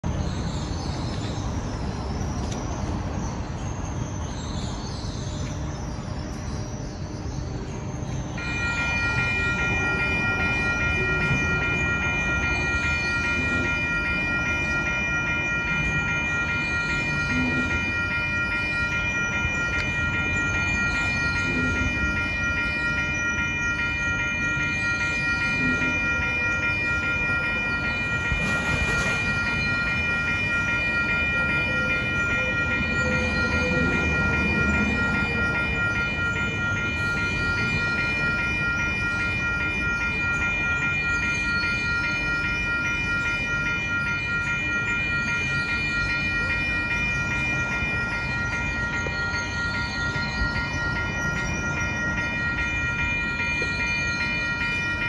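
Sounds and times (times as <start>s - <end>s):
railroad crossing bell ringing: 0.0s - 55.0s
traffic hum: 0.0s - 55.0s.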